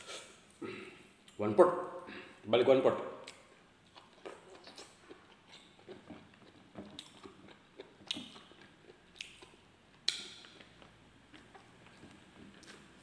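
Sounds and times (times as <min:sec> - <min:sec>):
man chewing with wet smacking: 0:03.2 - 0:13.0.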